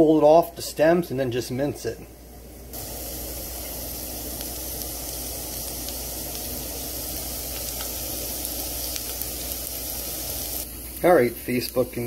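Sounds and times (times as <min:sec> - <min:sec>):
onion sizzling in pan: 0:02.7 - 0:12.0.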